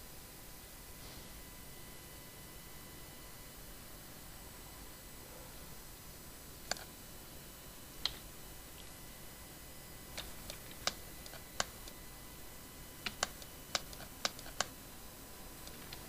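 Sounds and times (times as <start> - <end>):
mouse and keyboard clicks: 6.6 - 6.9, 10.1 - 12.0, 13.0 - 14.7, 15.6 - 16.0.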